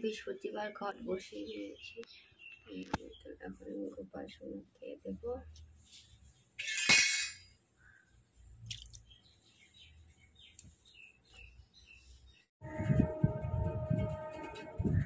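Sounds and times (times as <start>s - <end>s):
birds chirping: 0.1s - 5.2s, 7.8s - 12.5s.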